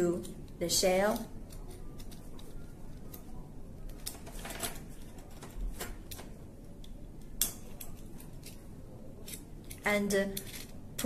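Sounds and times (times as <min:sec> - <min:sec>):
metal clamp clicks and scrapes: 0:09.2 - 0:10.8.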